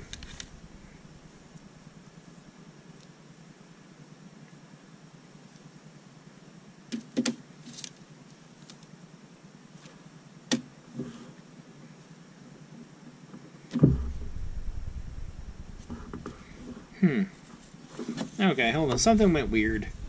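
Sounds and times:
low rumbling handling noise: 0.0 - 2.4, 13.8 - 17.9, 18.6 - 20.0
loud knock: 13.8 - 16.9.

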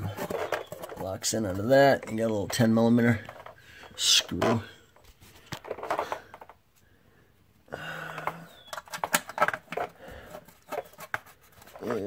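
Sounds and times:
hand tools clicking and knocking: 0.0 - 4.7, 7.9 - 12.0.

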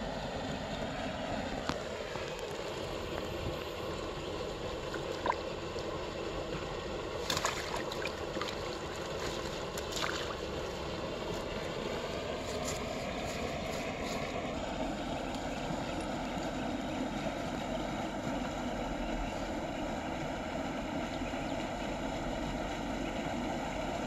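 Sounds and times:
steady background noise: 0.0 - 24.0
small water splashes: 1.7 - 6.2, 7.0 - 14.2.

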